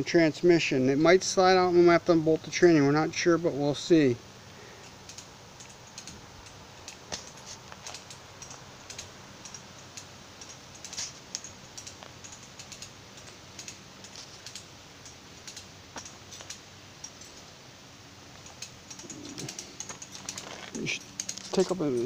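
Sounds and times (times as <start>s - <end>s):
ratchet and chain clicking: 4.8s - 17.5s, 18.3s - 22.0s.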